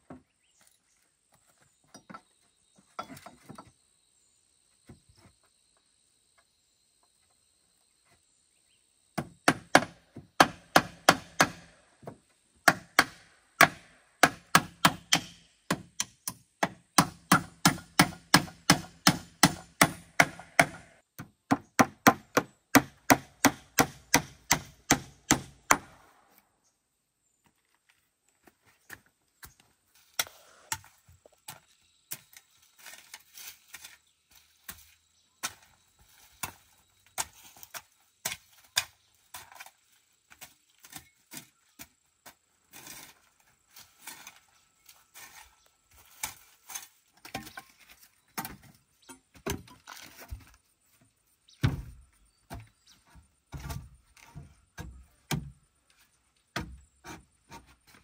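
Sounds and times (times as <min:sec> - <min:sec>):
hammer striking wooden planks: 0:09.2 - 0:26.0.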